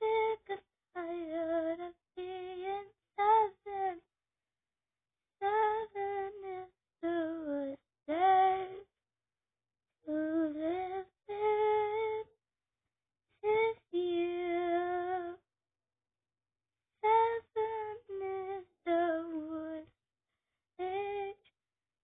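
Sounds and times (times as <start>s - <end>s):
girl singing unaccompanied: 0.0s - 4.0s, 5.4s - 8.9s, 10.1s - 12.3s, 13.4s - 15.4s, 17.0s - 19.9s, 20.8s - 21.5s.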